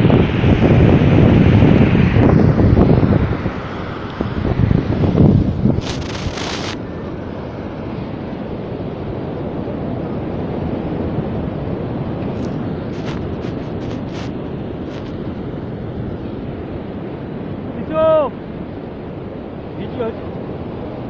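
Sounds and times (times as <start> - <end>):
surf breaking on beach: 0.0 - 8.0, 10.6 - 15.4
wind on microphone: 0.0 - 21.0.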